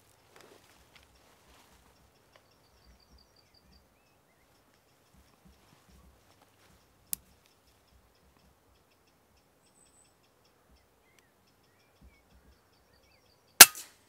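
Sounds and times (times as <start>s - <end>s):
bird chirps: 1.1s - 13.6s
sharp click: 13.6s - 14.0s.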